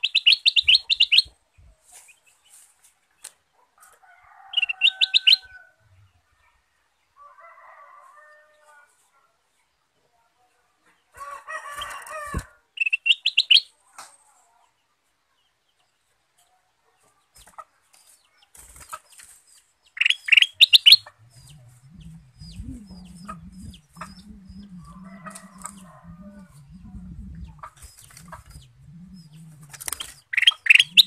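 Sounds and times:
bird chirping quickly: 0.0 - 1.4, 12.8 - 13.7, 20.0 - 31.0
low steady hum: 21.0 - 31.0
bird wing flaps: 22.4 - 30.3.

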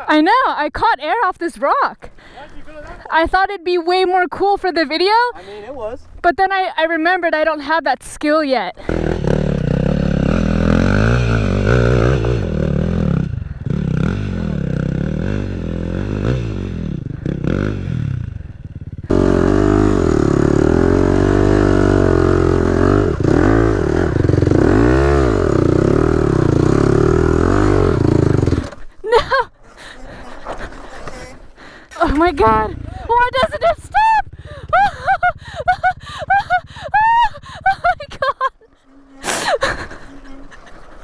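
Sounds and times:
dirt bike engine revving: 8.8 - 29.3, 31.9 - 38.4.

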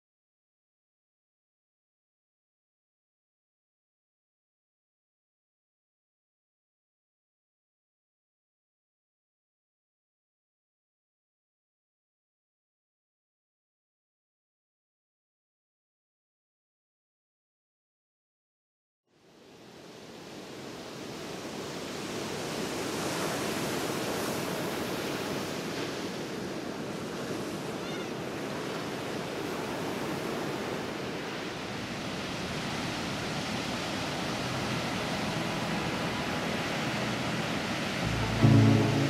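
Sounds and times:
waves washing on sand beach: 19.3 - 39.0
brief low-pitched sound: 38.0 - 39.0.

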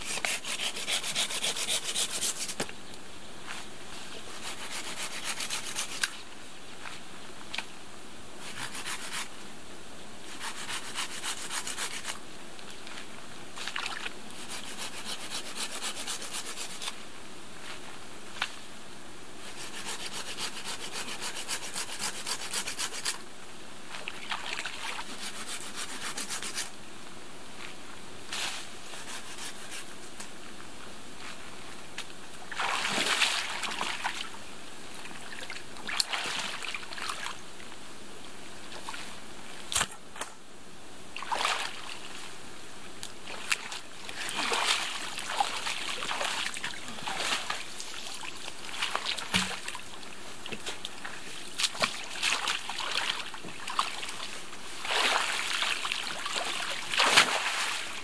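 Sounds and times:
water splashing and sloshing: 13.6 - 14.2, 23.9 - 25.1, 32.4 - 34.4, 35.0 - 37.4, 41.2 - 42.3, 43.2 - 58.0.

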